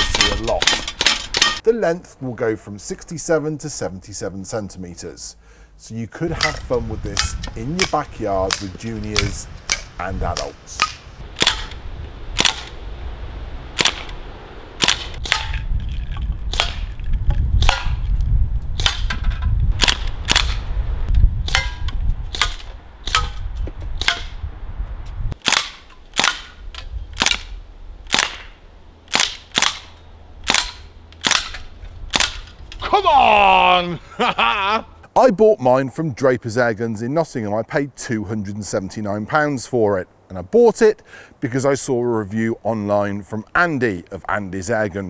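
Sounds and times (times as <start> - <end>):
air rifle shots: 12.4 - 12.8, 13.8 - 14.2, 14.8 - 15.6, 19.8 - 20.7, 25.4 - 26.6, 27.2 - 32.4.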